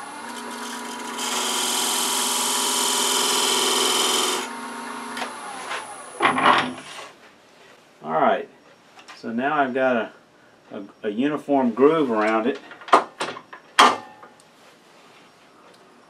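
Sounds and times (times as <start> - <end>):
wood lathe humming: 0.0 - 6.1.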